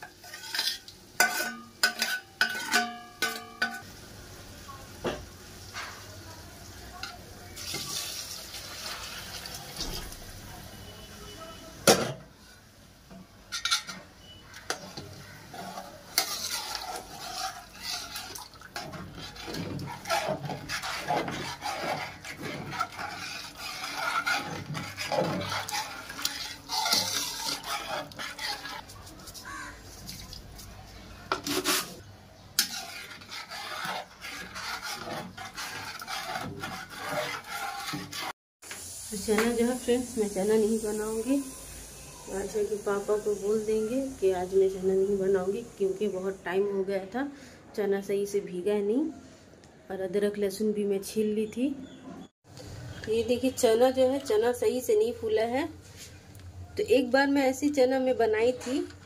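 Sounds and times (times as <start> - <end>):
metal ladle scraping a pot: 0.0 - 3.8, 13.5 - 30.7, 31.3 - 38.4
water pouring into a pot: 7.6 - 10.1, 16.4 - 20.2.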